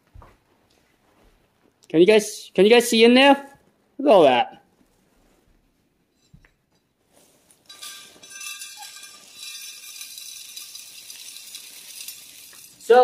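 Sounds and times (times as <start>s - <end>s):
plastic beads rattling into glass dish: 7.6s - 13.0s.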